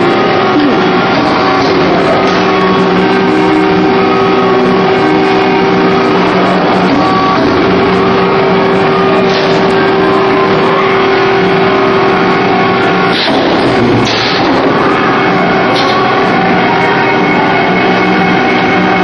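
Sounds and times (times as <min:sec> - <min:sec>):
welding machine noise: 0:00.0 - 0:19.0
sharp welding bursts: 0:13.1 - 0:14.6.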